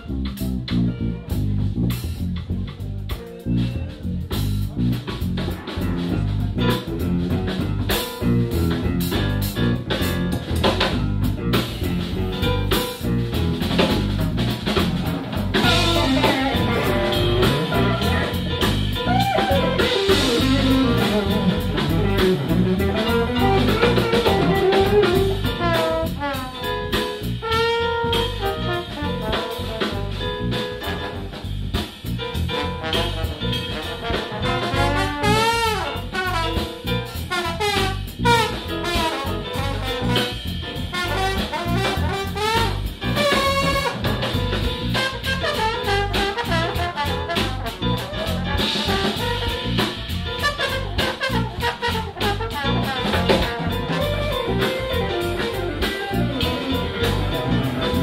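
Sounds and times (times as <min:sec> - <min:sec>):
drum kit beat: 0:00.0 - 0:58.0
jazz big band playing: 0:00.0 - 0:58.0.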